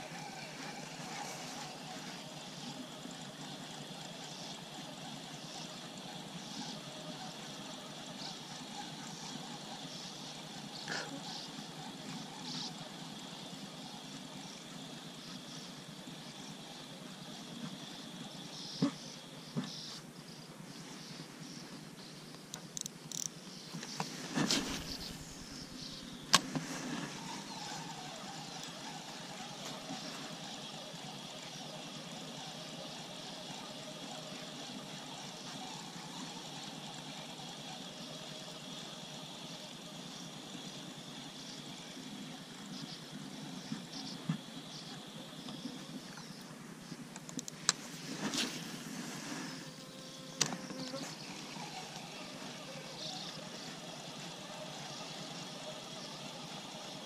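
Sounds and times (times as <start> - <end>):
high insect chirring: 21.4 - 26.4, 27.1 - 46.5, 49.4 - 57.0
fishing rod clicks and knocks: 22.6 - 23.3
faint low drone: 23.5 - 37.6.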